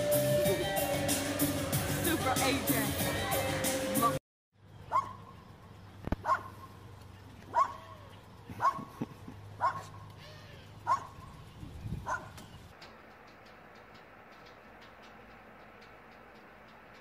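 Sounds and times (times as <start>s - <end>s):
small dog barking: 4.9s - 5.3s, 6.2s - 6.6s, 7.5s - 8.0s, 8.6s - 8.9s, 9.6s - 10.0s, 10.8s - 11.2s, 12.0s - 12.4s.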